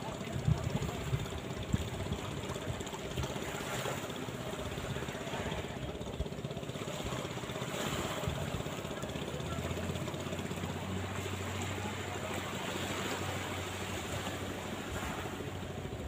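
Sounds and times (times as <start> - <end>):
gentle surf: 0.0 - 16.0
small boat engine running: 0.0 - 16.0
wind buffeting microphone: 0.1 - 3.2.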